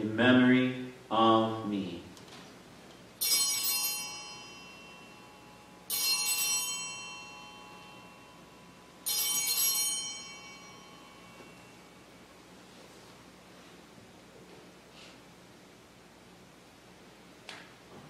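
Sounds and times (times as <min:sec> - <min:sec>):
altar bells ringing: 0:03.2 - 0:12.4.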